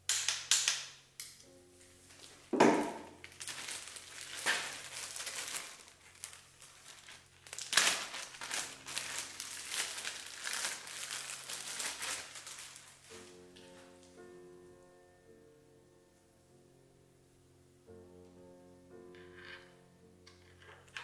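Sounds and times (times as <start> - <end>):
plastic packaging crinkling: 2.1 - 13.2.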